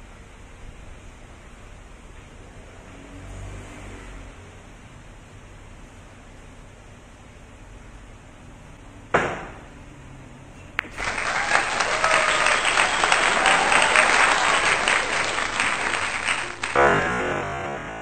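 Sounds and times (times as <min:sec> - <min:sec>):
crowd applause: 0:10.8 - 0:17.6.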